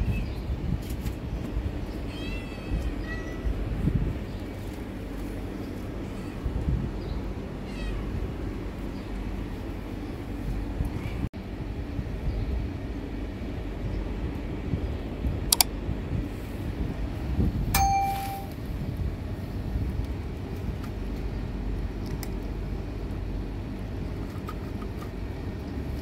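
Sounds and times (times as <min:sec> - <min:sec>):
street traffic rumble: 0:00.0 - 0:26.0
sharp click: 0:15.5 - 0:15.7
bell ding: 0:17.8 - 0:18.6.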